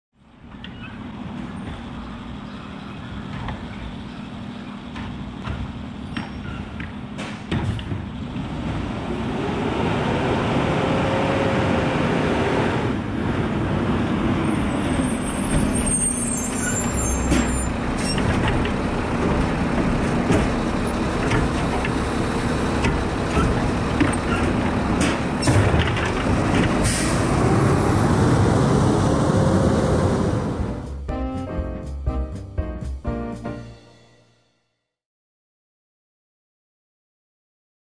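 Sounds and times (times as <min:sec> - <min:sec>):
garbage truck diesel engine: 0:00.3 - 0:33.8
air brakes hissing: 0:15.1 - 0:18.2, 0:26.8 - 0:27.3.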